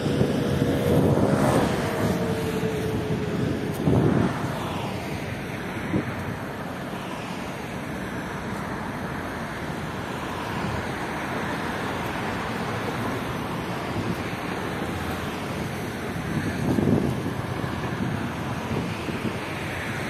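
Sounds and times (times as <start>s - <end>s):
wind on microphone: 0.0s - 7.0s, 13.4s - 20.0s
city traffic noise: 0.0s - 20.0s.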